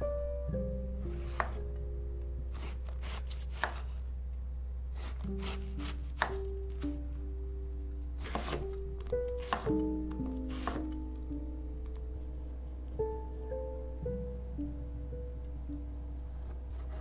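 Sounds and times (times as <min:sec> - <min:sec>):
background music with held notes: 0:00.0 - 0:02.6, 0:05.2 - 0:17.0
knife chopping on wooden board: 0:01.2 - 0:01.6, 0:02.5 - 0:03.9, 0:05.0 - 0:06.4, 0:08.2 - 0:08.7, 0:09.4 - 0:09.8, 0:10.5 - 0:10.9.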